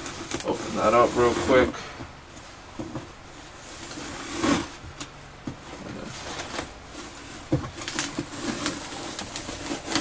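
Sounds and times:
fingers scratching packing tape: 0:07.8 - 0:10.0.

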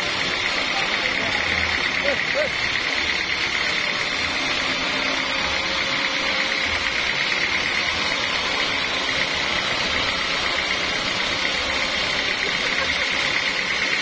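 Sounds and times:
band saw cutting log: 0:00.0 - 0:14.0.

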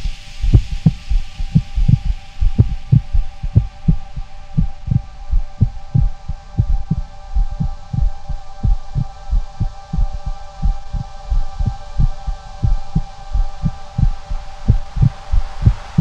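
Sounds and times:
steady droning hum: 0:00.0 - 0:16.0
heartbeat-like deep thumps: 0:00.4 - 0:16.0.

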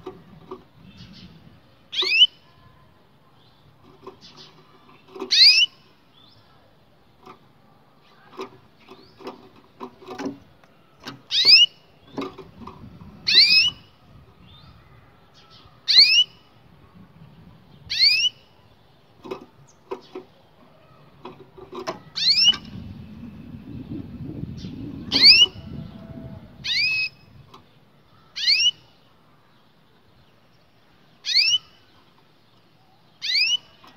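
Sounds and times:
canary rising whistled calls: 0:13.3 - 0:13.9, 0:25.1 - 0:25.6, 0:26.6 - 0:27.2, 0:28.4 - 0:28.8, 0:31.3 - 0:31.7, 0:33.2 - 0:33.7.

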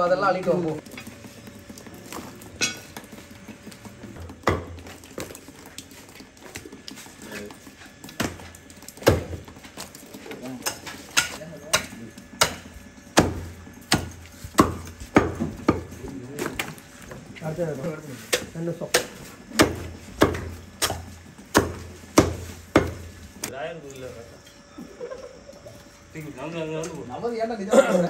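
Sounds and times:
cleaver chopping on wooden block: 0:04.4 - 0:04.7, 0:09.0 - 0:09.4, 0:10.6 - 0:15.9, 0:18.3 - 0:23.5.

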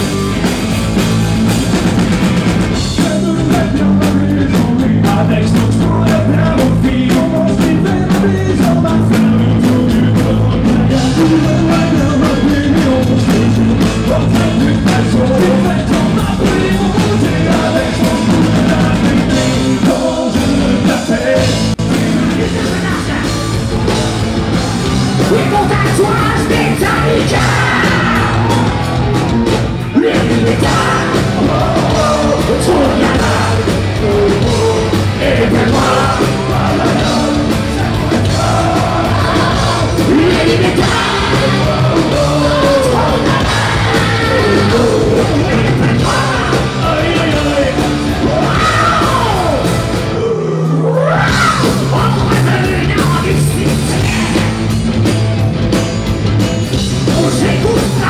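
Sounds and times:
heavy rock band playing: 0:00.0 - 0:58.0
singer yelling and singing: 0:02.6 - 0:54.8, 0:57.0 - 0:58.0.

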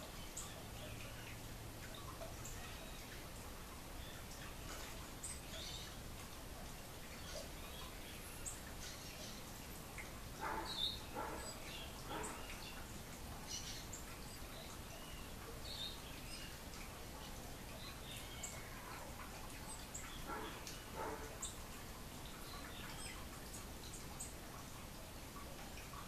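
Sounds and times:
steady background hiss: 0:00.0 - 0:26.0
birds chirping and calling: 0:10.4 - 0:24.3.

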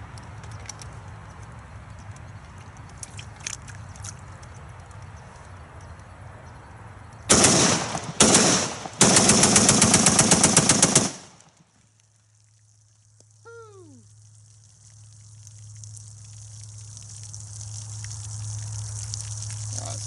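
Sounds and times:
rapid rifle fire: 0:07.3 - 0:11.6.

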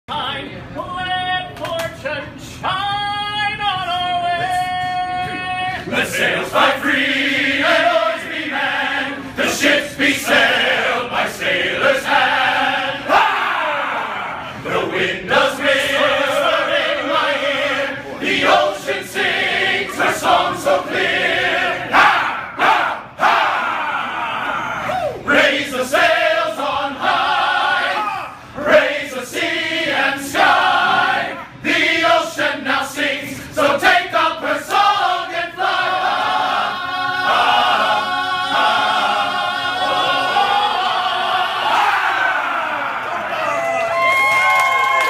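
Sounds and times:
men's choir singing a cappella: 0:05.7 - 0:43.0.

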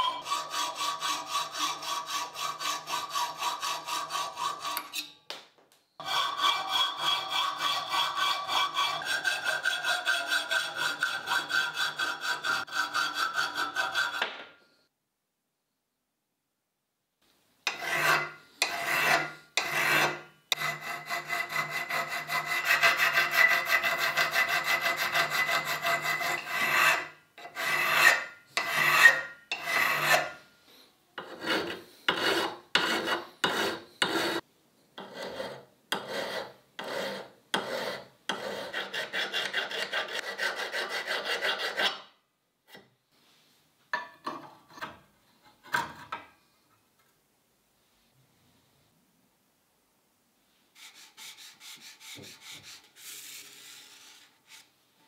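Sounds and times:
hand file rasping on steel: 0:00.0 - 0:05.2, 0:06.0 - 0:14.3, 0:17.7 - 0:30.4, 0:31.2 - 0:34.4, 0:35.0 - 0:42.1, 0:50.8 - 0:54.6.

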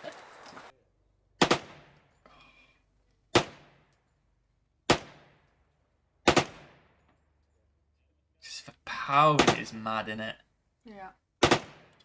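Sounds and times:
rifle shots echoing: 0:04.9 - 0:05.5, 0:06.2 - 0:07.0, 0:11.4 - 0:12.0.

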